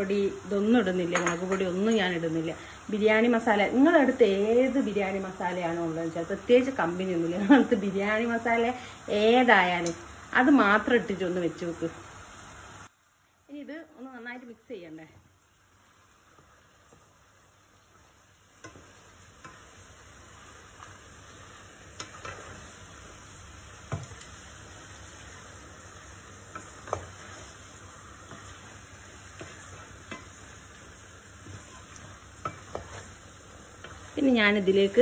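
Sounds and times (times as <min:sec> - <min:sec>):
frying sizzle: 0:00.0 - 0:35.0
wooden spatula scraping pan: 0:26.5 - 0:30.8, 0:31.4 - 0:34.2.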